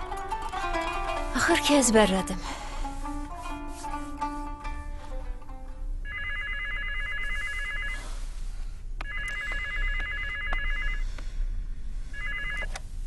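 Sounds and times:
telephone ringing: 6.0 - 8.1, 9.0 - 11.0, 12.1 - 12.7.

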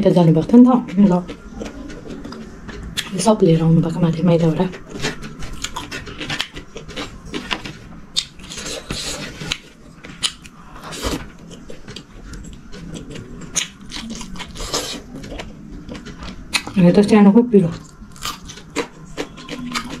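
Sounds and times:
eating noises: 0.5 - 3.6, 4.4 - 20.0
food scraping on a plate: 4.9 - 10.2.

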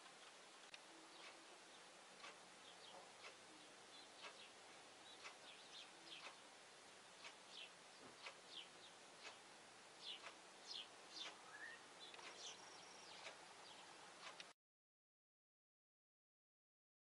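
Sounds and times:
faint clock ticking: 0.0 - 14.6
bird chirps: 2.6 - 6.4, 10.0 - 13.9.

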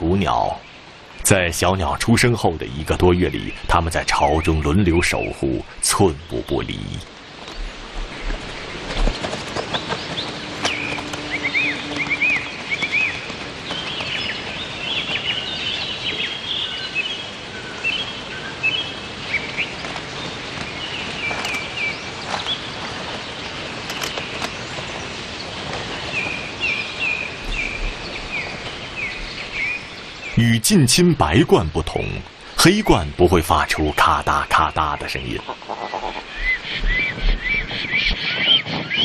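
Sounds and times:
forest background hiss: 0.0 - 39.0
songbirds chirping and singing: 0.0 - 39.0.

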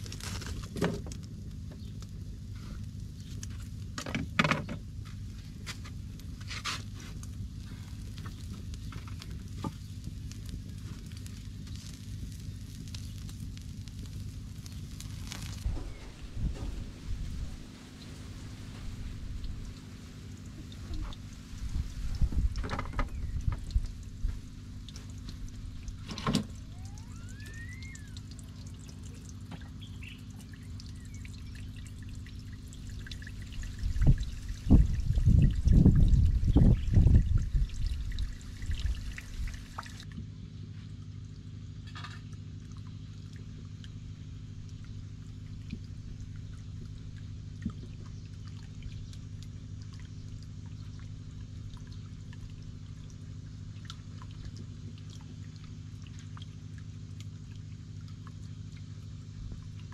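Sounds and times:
wood fire crackling and popping: 0.0 - 22.7
steady low rumble: 0.0 - 41.8, 42.4 - 59.9
water trickling and dripping: 0.1 - 59.9
faint whistle: 26.7 - 28.2.

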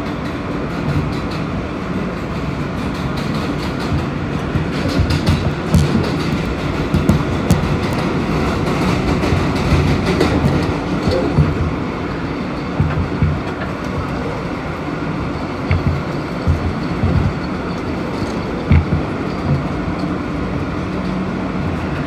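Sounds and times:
rail clicks: 0.0 - 22.0
train wheels rumbling on rail: 0.0 - 22.0.

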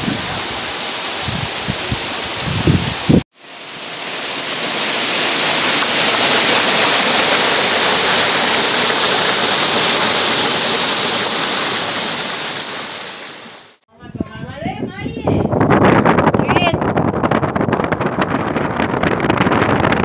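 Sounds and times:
stream rushing over rocks: 0.0 - 13.8.

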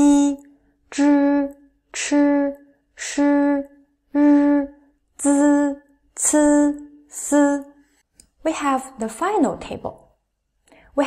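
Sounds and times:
woman reciting syllables: 0.0 - 9.9.

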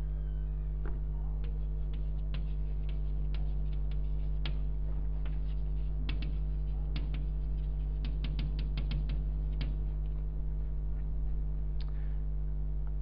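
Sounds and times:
electrical mains hum: 0.0 - 13.0
chalk tapping on blackboard: 1.4 - 10.0.

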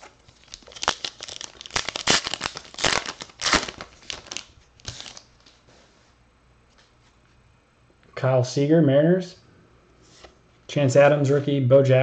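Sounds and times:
wrapper tearing and crinkling: 0.3 - 5.3.

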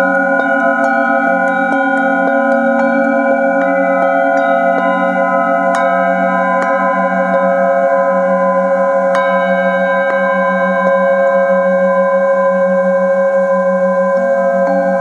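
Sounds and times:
low pulsing hum: 0.0 - 9.1
singing bowl struck: 0.0 - 15.0
singing bowls ringing: 0.0 - 15.0.

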